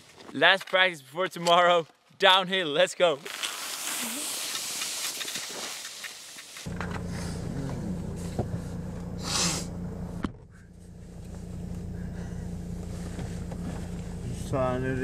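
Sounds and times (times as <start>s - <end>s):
short hissing burst: 3.4s - 7.2s, 9.2s - 9.7s
car engine idling: 6.7s - 15.0s.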